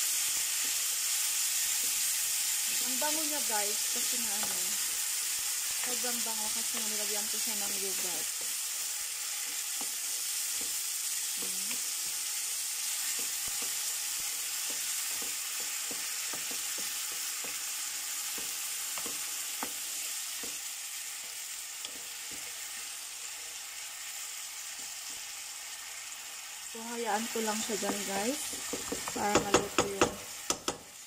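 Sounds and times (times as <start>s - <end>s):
chicken sizzling in hot oil: 0.0s - 31.0s
spatula scraping and tapping pan: 4.2s - 6.0s, 6.6s - 7.1s, 9.4s - 22.8s, 27.6s - 30.9s.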